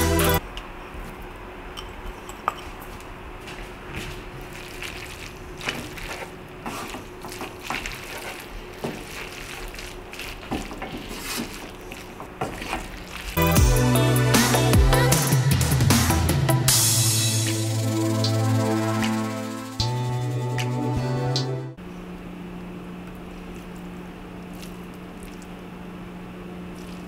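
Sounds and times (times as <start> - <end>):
wooden spoon scraping a pan: 4.5 - 13.4.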